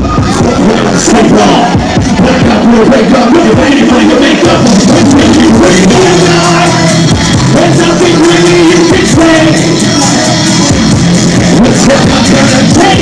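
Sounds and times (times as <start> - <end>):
driving drum beat: 0.0 - 13.0
live band music through speakers: 0.0 - 13.0
person singing: 0.0 - 13.0.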